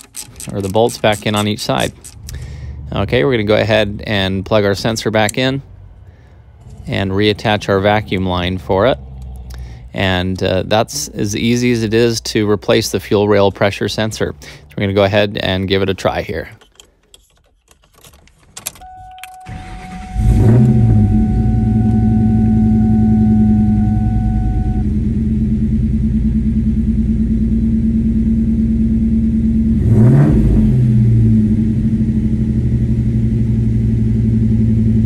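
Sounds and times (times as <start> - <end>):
key turning clicks: 0.0 - 2.5, 16.5 - 19.5
car engine starting and idling: 0.0 - 35.0
electronic warning tone: 18.8 - 25.0.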